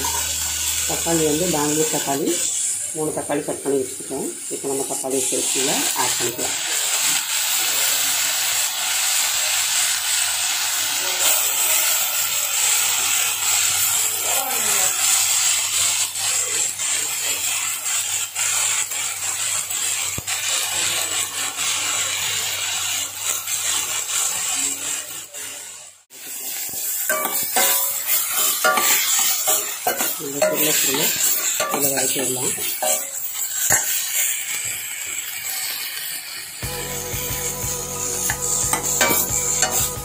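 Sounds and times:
vegetables sizzling in hot oil: 0.0s - 40.0s
spoon stirring and clinking pot: 27.1s - 34.0s.

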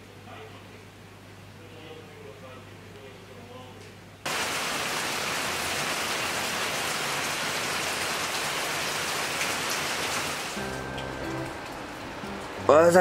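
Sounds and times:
steady rain falling: 4.3s - 13.0s.

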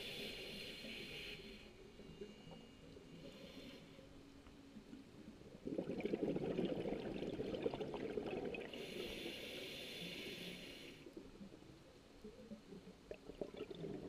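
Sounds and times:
regulator hiss on inhale: 0.0s - 4.2s, 8.7s - 11.2s
exhaled air bubbling: 4.8s - 14.0s.

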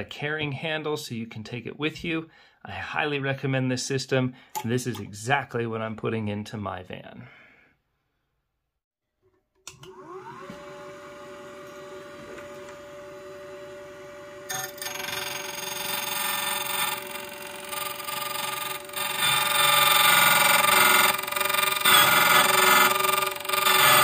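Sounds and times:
key cutting machine motor whine: 9.9s - 24.0s
cutter wheel cutting key: 14.5s - 24.0s.

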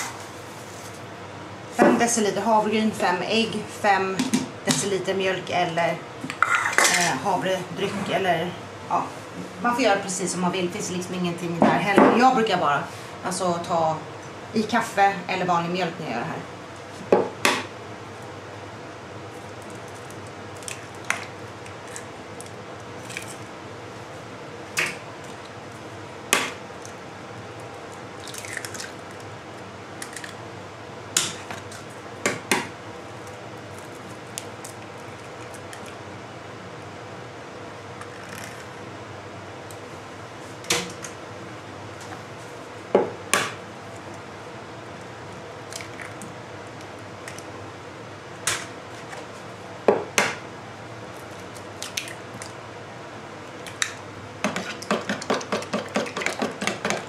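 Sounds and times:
faint steady hum: 0.0s - 57.0s
shell and liquid sounds: 28.2s - 29.3s.

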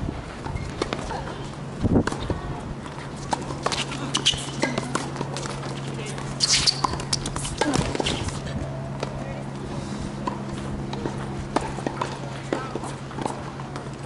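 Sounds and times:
steady low hum: 0.0s - 14.0s
tennis ball bouncing: 2.0s - 8.4s, 10.2s - 14.0s
tennis ball off racket: 2.9s - 8.4s, 10.2s - 14.0s.

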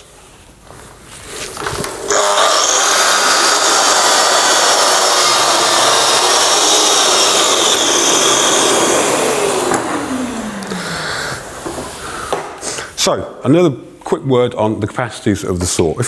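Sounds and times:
mitre saw cutting wood: 2.0s - 12.3s.

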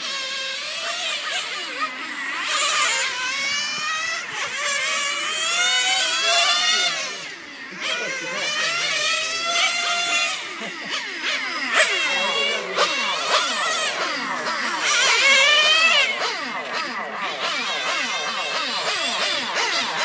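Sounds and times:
small engine revving very high: 0.0s - 20.0s.

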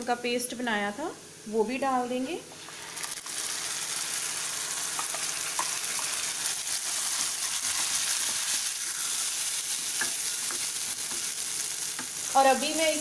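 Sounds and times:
paste sizzling in hot oil: 2.6s - 13.0s
wooden spatula tapping and scraping: 9.9s - 12.2s.

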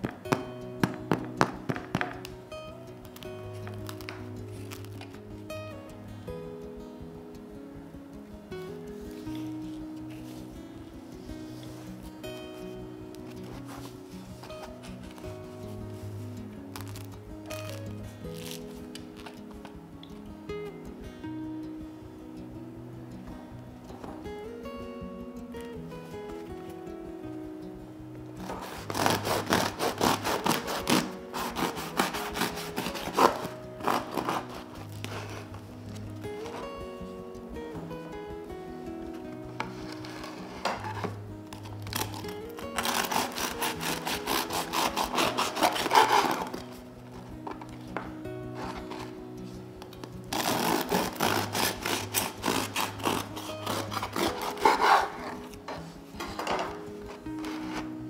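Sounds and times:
soft background music: 0.0s - 58.0s
bread knife sawing crusty loaf: 28.9s - 34.5s, 42.8s - 46.5s, 50.4s - 55.4s.

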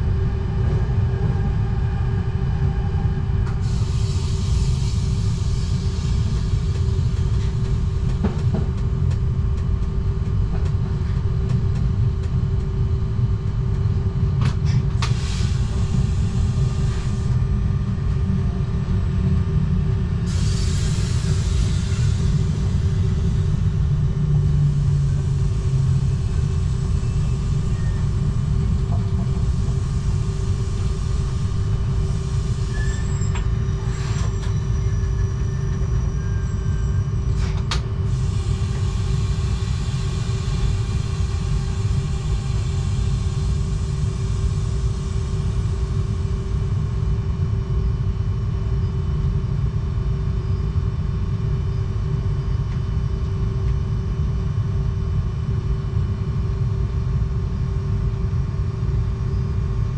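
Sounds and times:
train wheels rumbling on rails: 0.0s - 54.4s.

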